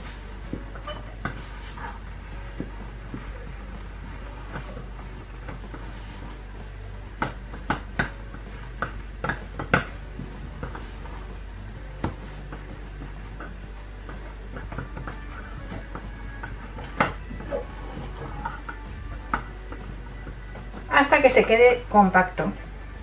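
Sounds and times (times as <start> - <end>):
wooden spoon scraping saucepan: 0.0 - 3.3, 4.2 - 6.4.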